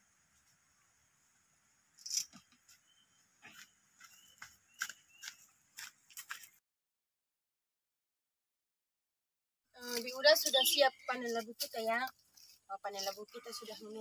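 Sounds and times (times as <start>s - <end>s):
faint high chirps: 2.0s - 5.5s, 9.9s - 11.4s.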